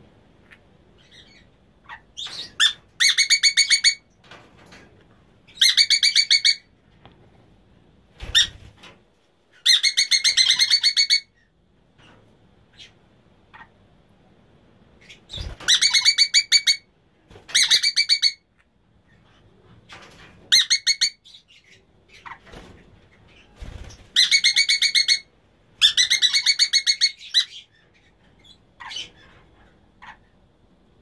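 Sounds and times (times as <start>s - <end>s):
parrots chattering: 5.5s - 6.7s, 9.6s - 11.4s, 12.7s - 13.7s, 15.0s - 16.9s, 24.2s - 29.4s, 30.0s - 30.4s.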